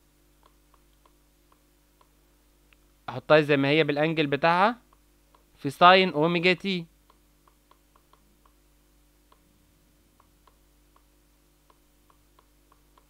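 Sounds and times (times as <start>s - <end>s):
stylus tapping on tablet: 0.4s - 2.2s, 4.9s - 5.6s, 7.0s - 8.6s, 10.1s - 13.0s.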